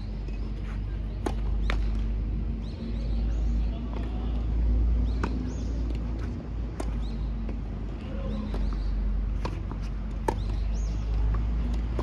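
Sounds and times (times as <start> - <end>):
tennis ball hits and bounces: 0.2 - 2.2, 5.0 - 12.0.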